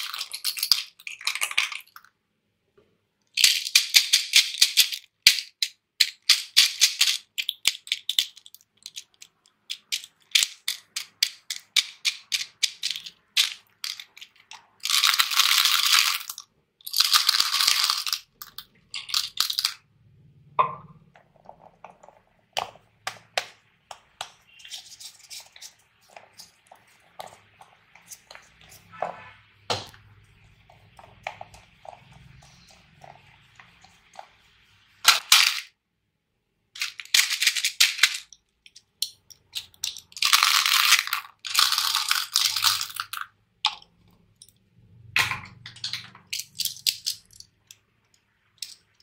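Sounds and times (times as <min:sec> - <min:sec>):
small hard pieces rattling into tubs: 0:00.0 - 0:02.1, 0:03.4 - 0:19.8, 0:35.0 - 0:35.7, 0:36.8 - 0:43.8, 0:45.2 - 0:47.6, 0:48.6 - 0:49.0.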